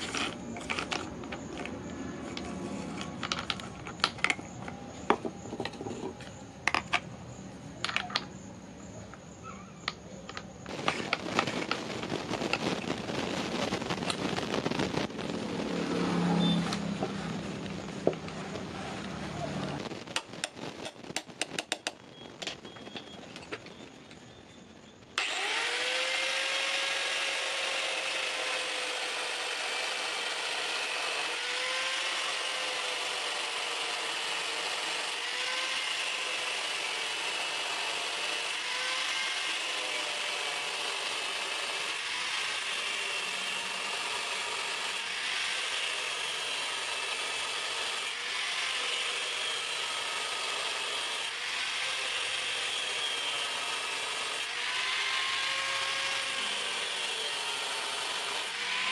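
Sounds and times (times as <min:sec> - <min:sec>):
angle grinder cutting steel: 0:00.0 - 0:03.1, 0:25.2 - 0:58.9.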